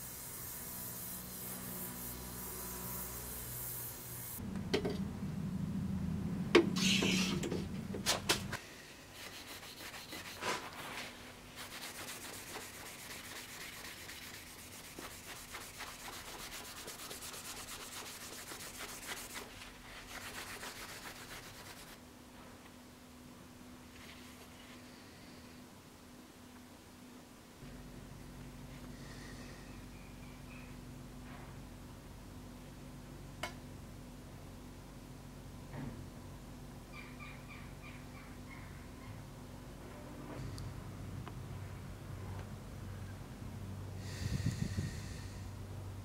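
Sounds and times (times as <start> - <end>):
gas torch hissing: 0.0 - 4.4
steel rubbed on cloth: 9.1 - 22.0.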